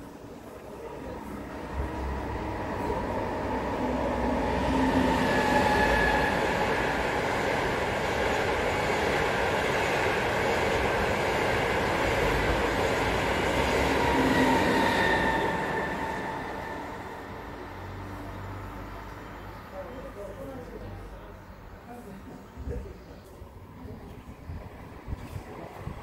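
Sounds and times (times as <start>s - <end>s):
train wheels rushing on rail: 0.0s - 18.6s
faint train whine: 0.0s - 26.0s.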